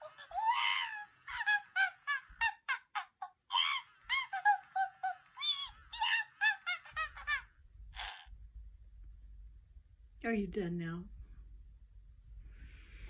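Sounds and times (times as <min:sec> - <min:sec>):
toy monkey squeaky calls: 0:00.0 - 0:08.3.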